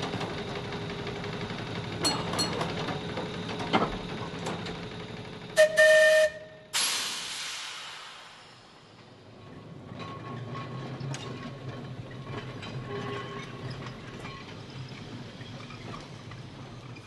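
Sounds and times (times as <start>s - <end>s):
tram wheels clicking over rail joints: 0.0s - 5.6s, 8.9s - 17.0s
hiss: 6.8s - 8.8s.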